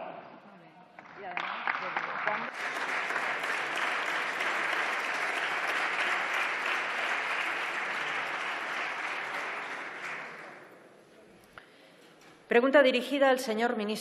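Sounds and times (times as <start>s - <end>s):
crowd applauding in a hall: 1.0s - 11.0s.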